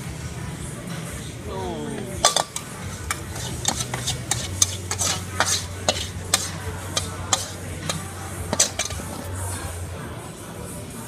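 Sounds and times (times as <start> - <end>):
metal utensils scraping a wok: 2.2 - 9.5.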